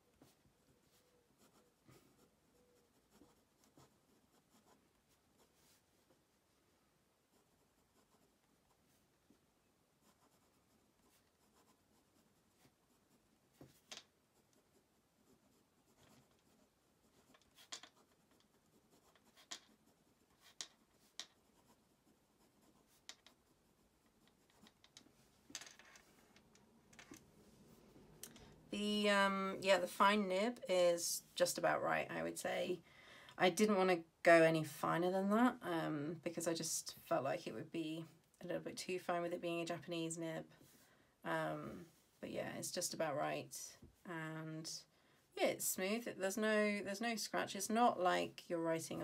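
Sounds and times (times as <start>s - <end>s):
fountain pen scratching on paper: 0.2s - 6.1s, 7.3s - 8.9s, 10.0s - 24.9s.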